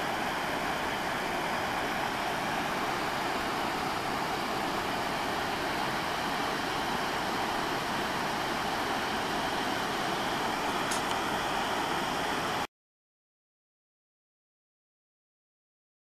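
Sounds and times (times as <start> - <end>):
waterfall rushing: 0.0 - 12.7.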